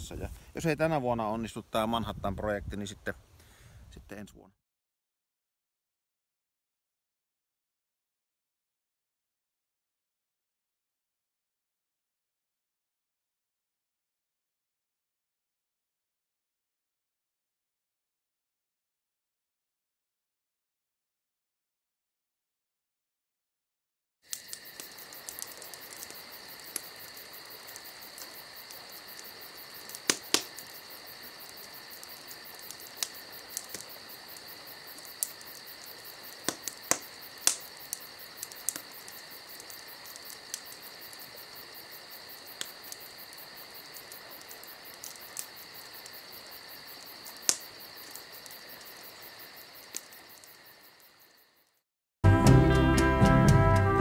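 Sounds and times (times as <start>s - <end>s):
crickets chirping: 24.3s - 51.8s.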